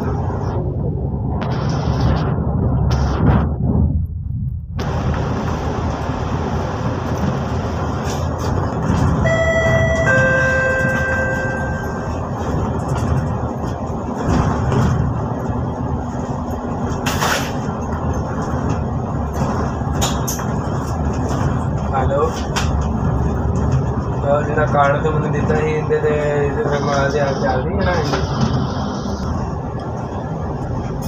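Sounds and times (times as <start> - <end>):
bus engine and road rumble: 0.0 - 31.0
two-note falling chime: 9.3 - 12.1.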